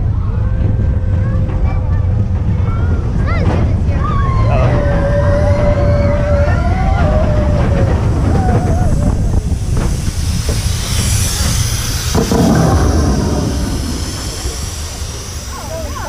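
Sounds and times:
roller coaster cars rattling on track: 0.0s - 16.0s
steam hissing: 6.4s - 16.0s.

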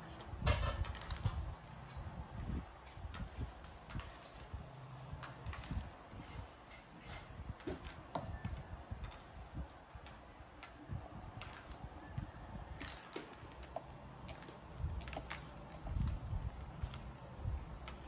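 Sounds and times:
small balls clicking: 7.5s - 18.0s.

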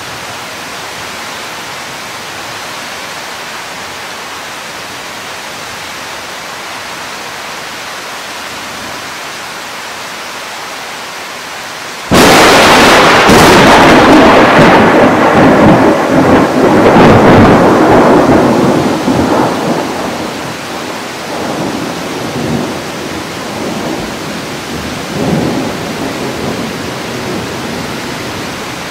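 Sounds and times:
steady rain: 0.0s - 28.9s
thunder clap and rumble: 12.1s - 27.9s.

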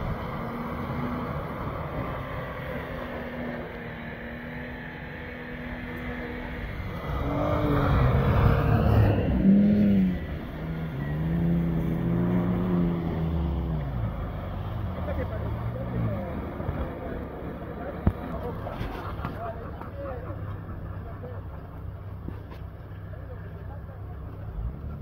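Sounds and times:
engine revving: 0.0s - 25.0s
tyres churning snow: 0.0s - 25.0s.

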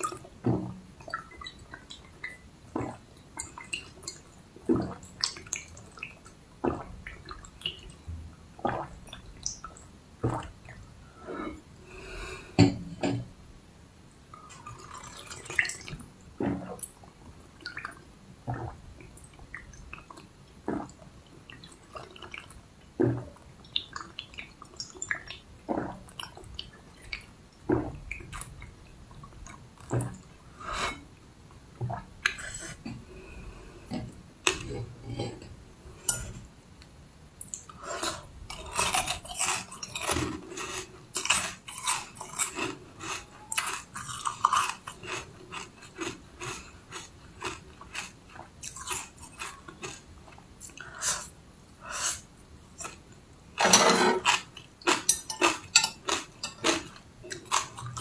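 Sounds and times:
crisp crunching chews: 38.5s - 50.0s.

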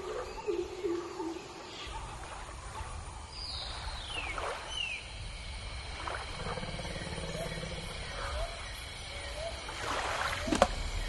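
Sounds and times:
moving water: 0.0s - 11.0s
hippopotamus grunting: 6.4s - 8.6s.

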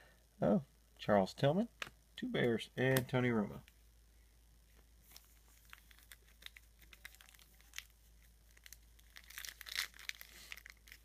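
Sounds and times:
foil wrapper tearing and crinkling: 5.1s - 11.0s.

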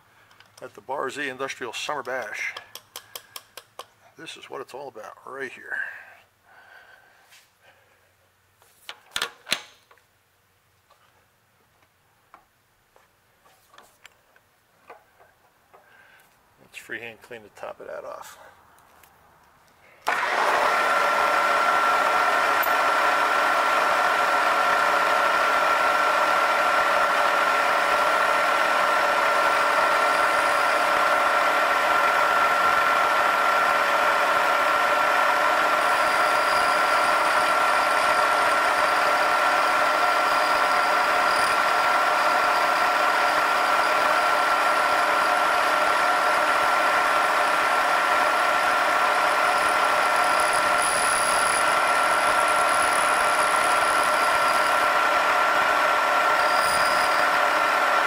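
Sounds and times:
milling machine whining: 20.1s - 58.0s.

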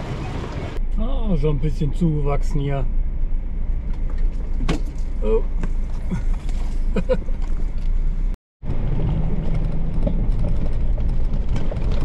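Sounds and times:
vehicle rattling over stones: 3.8s - 12.0s.

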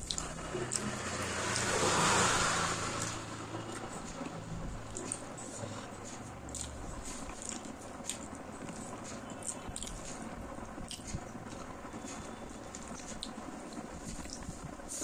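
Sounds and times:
wet chewing: 0.0s - 15.0s
mouth clicks and smacks: 3.0s - 15.0s.

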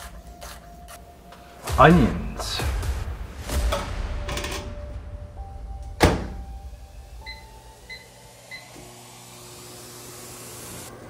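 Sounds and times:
microwave humming: 5.7s - 11.0s.

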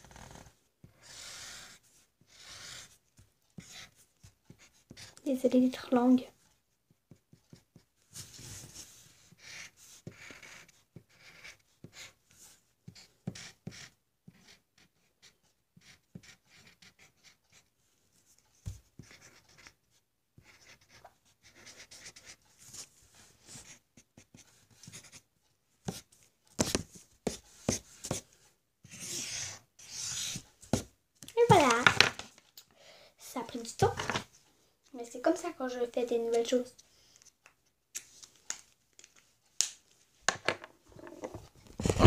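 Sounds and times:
pencil scratching on paper: 0.0s - 5.7s, 7.1s - 17.7s, 18.3s - 32.0s, 41.0s - 42.0s.

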